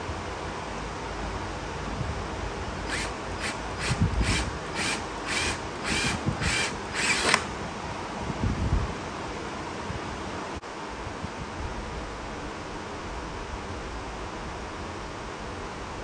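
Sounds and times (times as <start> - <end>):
power tool motor whirring: 2.8 - 7.6.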